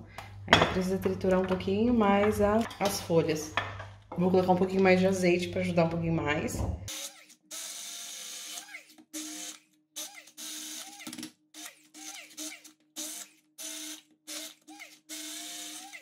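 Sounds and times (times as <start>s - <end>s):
immersion blender motor whine: 6.9s - 16.0s.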